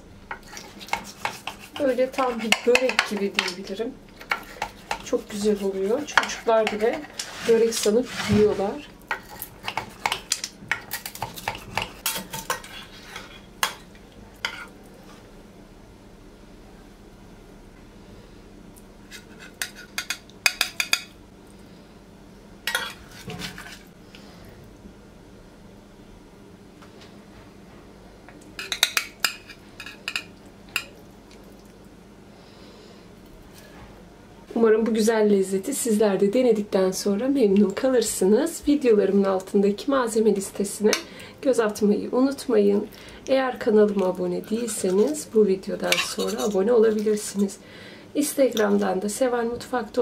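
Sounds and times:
knife scraping glass baking dish: 0:00.4 - 0:03.5, 0:04.3 - 0:10.2, 0:45.9 - 0:47.0.

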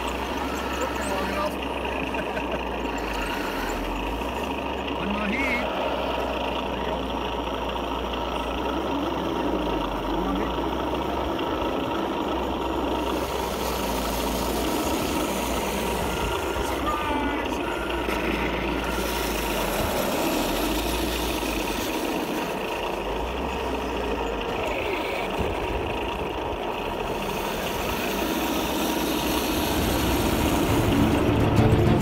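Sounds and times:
model tanks mechanical drone: 0:00.0 - 0:32.0
music: 0:30.8 - 0:32.0.

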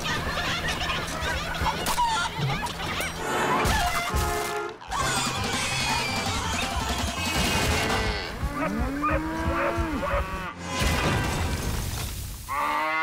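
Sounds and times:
cartoon pigs squealing: 0:04.8 - 0:10.3.

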